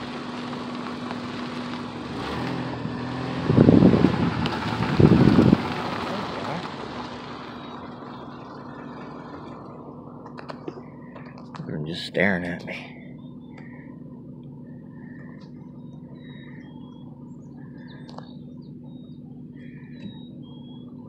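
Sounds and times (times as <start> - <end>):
wind on microphone: 3.3 - 5.8.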